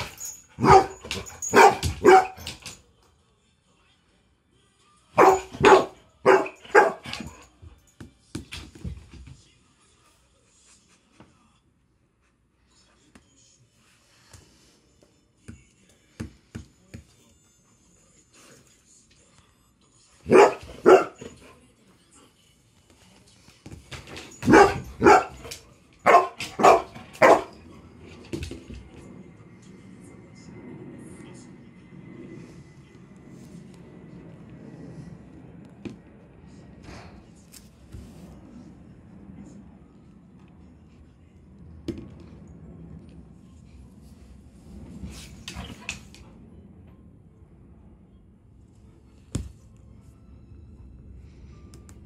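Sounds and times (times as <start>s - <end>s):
dog barking: 0.6s - 2.5s, 5.2s - 7.4s, 20.3s - 21.4s, 24.4s - 27.6s.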